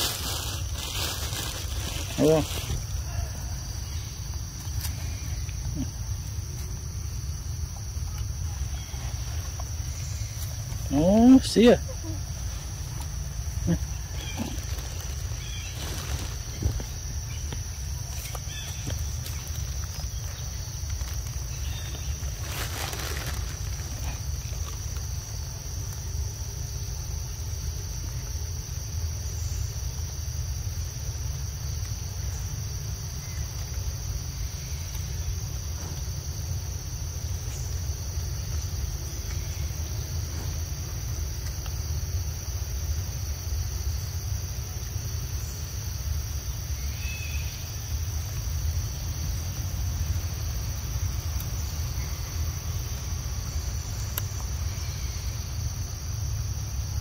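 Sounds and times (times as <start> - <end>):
insect chorus drone: 0.0 - 57.0
constant low rumble: 11.8 - 57.0.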